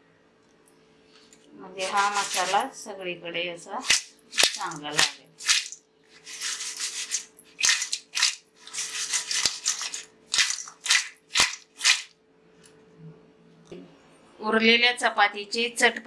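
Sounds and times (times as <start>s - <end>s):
crunchy strips tossed in a bowl: 1.8s - 2.7s, 3.8s - 12.1s.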